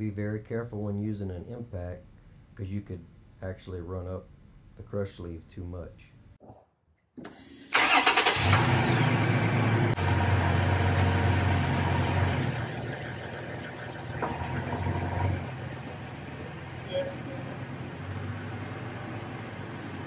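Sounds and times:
truck engine starting and idling: 7.2 - 20.0.

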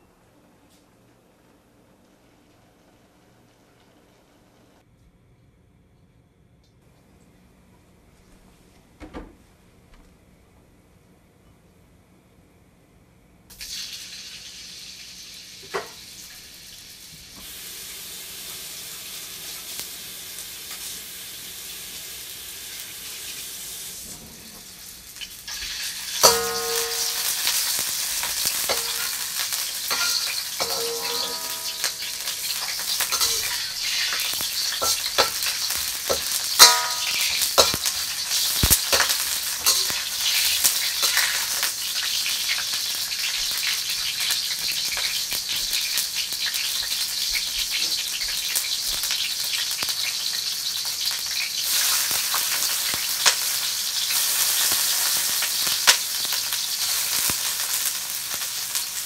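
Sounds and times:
food sizzling in a pan: 13.5 - 59.0
utensil scraping a pan: 26.2 - 41.7.

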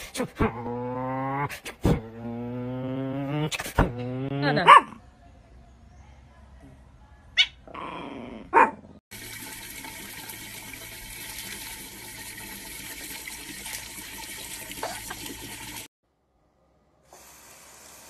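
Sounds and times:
water splashing into watering can: 9.1 - 15.9.

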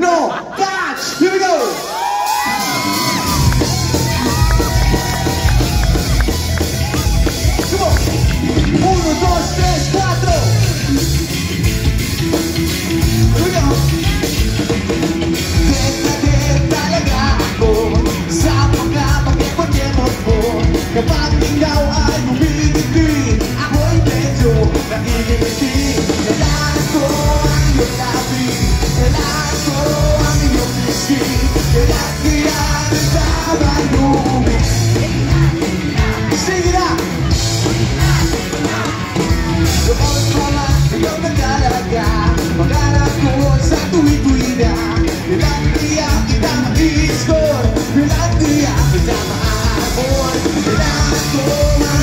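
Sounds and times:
rock band playing live: 0.0 - 52.0
man singing: 8.7 - 10.8, 13.0 - 52.0.

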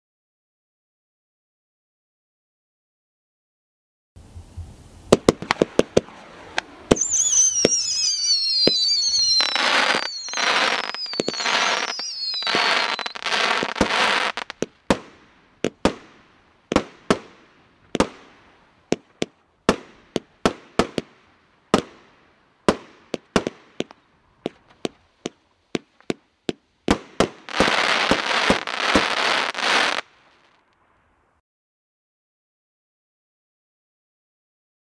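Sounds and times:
falling firework whistles: 4.2 - 17.3, 27.0 - 30.6
firework crackling: 4.2 - 31.1
firework shots: 5.1 - 30.8.

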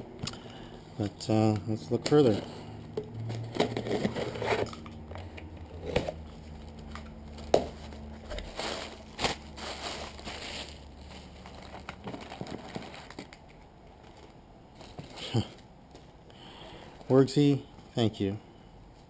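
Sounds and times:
cardboard box being opened: 3.3 - 4.9, 5.7 - 13.3
plastic packing crinkling: 5.8 - 15.3.

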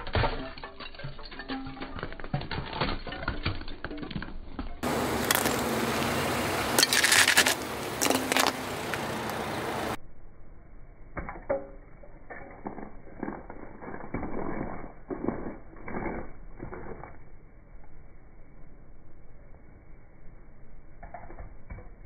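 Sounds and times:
tyre crushing brittle toys: 0.0 - 5.7, 6.7 - 9.0.

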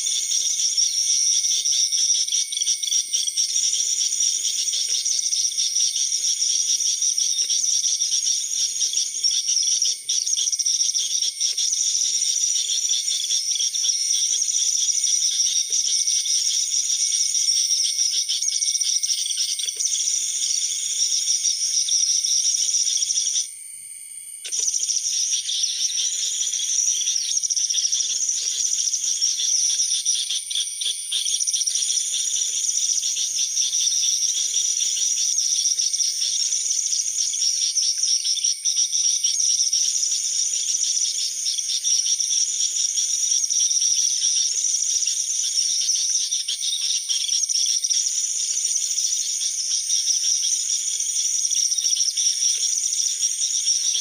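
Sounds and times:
recorded bird calls chittering: 0.0 - 54.0
faint bird chirping: 24.4 - 54.0.

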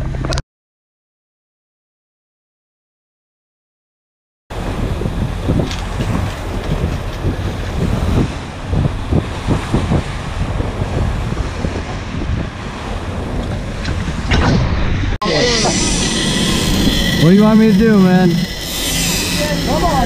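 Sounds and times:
boat engine low rumble: 0.0 - 0.4, 4.5 - 20.0
wind buffeting microphone: 4.5 - 20.0.

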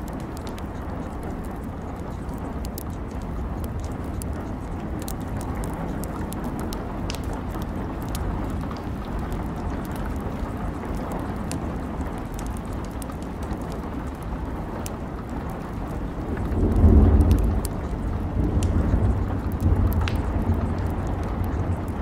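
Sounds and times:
steady rain: 0.0 - 22.0
thunder rumble: 15.3 - 22.0.

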